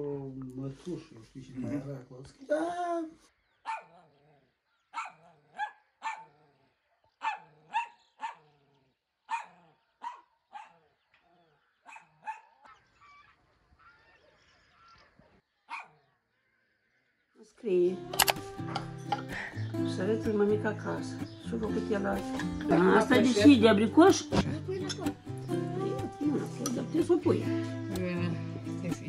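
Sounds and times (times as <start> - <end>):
dog barking: 3.6 - 4.2, 4.9 - 8.6, 9.3 - 11.0, 11.8 - 12.8, 15.7 - 16.1.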